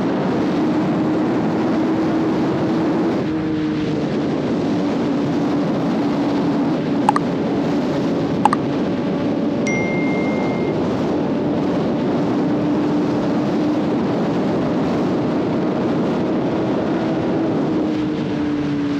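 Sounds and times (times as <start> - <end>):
motorcycle engine cruising: 0.0 - 18.9
wind rush on microphone: 0.0 - 18.9
short high thin tone: 9.7 - 10.8.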